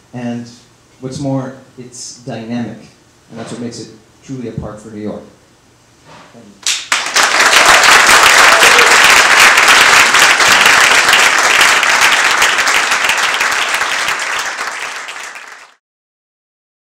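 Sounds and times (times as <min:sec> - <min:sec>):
audience applauding: 0:06.7 - 0:15.8.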